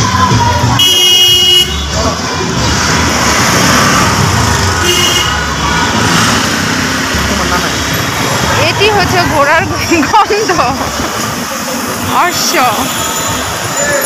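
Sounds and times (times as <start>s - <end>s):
road traffic noise: 0.0s - 14.0s
vehicle horn honking: 0.8s - 1.9s, 4.8s - 5.5s.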